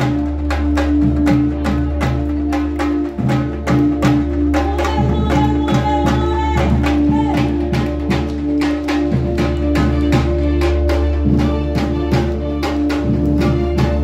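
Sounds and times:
drums beating a rhythm: 0.0 - 14.0
sustained melody line: 0.0 - 14.0.

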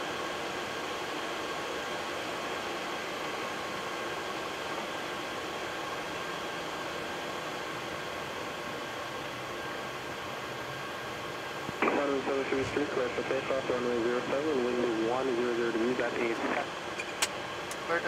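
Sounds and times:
faint steady whine: 0.0 - 18.0
jet engines idling: 0.2 - 18.0
air-conditioning hiss: 11.3 - 18.0.

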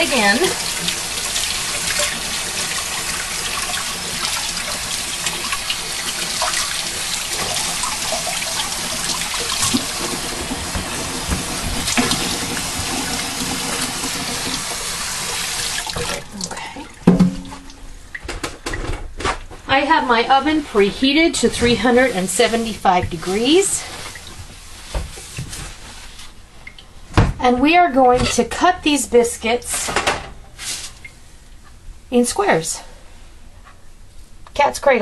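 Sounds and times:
faucet running into sink: 0.0 - 17.8
loud knock: 17.1 - 17.7.

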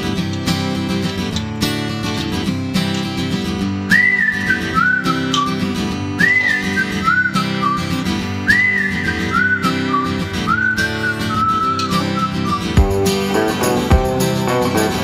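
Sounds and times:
strummed acoustic guitar: 0.0 - 15.0
whistled tune: 3.8 - 15.0.

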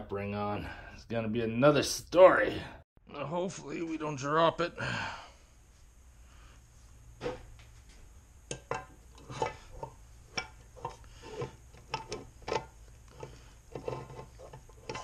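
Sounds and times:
metal parts rubbing: 9.2 - 15.0.

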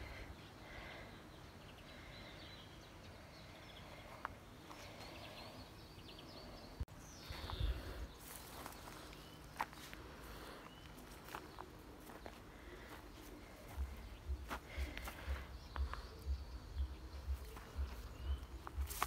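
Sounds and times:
small birds chirping: 0.0 - 19.0.

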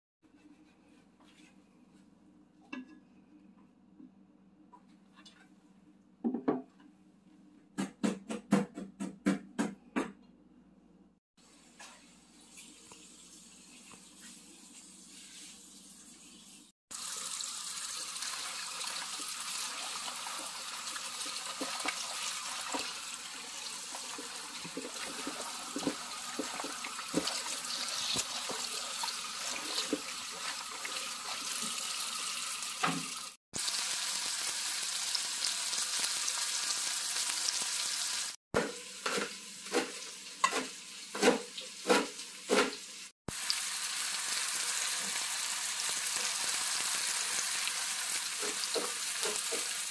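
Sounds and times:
tap water running into a bowl: 16.9 - 33.2.

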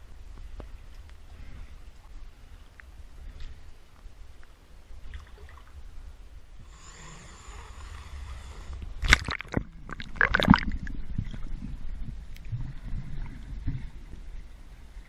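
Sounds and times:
steady low rumble: 0.0 - 15.0
water sloshing and gurgling: 4.9 - 6.6, 7.4 - 15.0
loud water splashes: 9.0 - 10.8.

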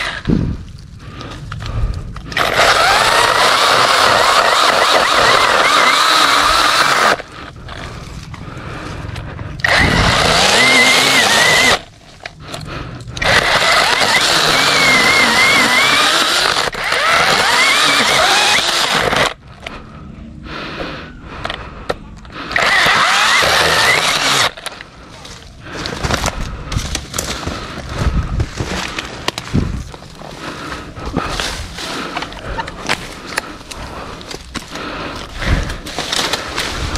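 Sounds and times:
mini chainsaw cutting branches: 2.3 - 7.9, 9.6 - 11.9, 13.2 - 19.4, 22.5 - 27.8, 30.3 - 36.9.

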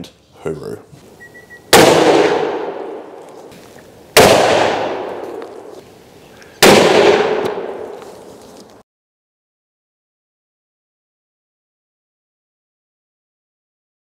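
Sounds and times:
rifle shots with echo: 1.7 - 3.5, 4.1 - 5.8, 6.6 - 8.1.

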